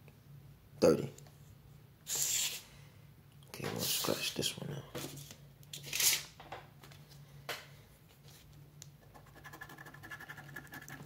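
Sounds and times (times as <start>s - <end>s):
coin scratching lottery ticket: 9.2s - 11.0s.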